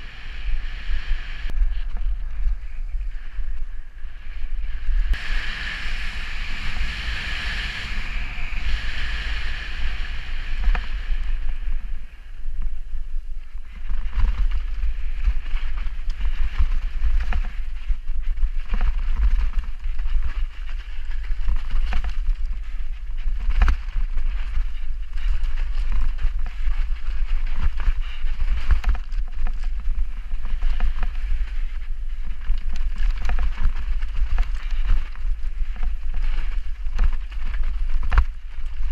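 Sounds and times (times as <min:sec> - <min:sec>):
wind buffeting microphone: 0:00.0 - 0:38.9
bike knocking and rattling: 0:13.6 - 0:38.9.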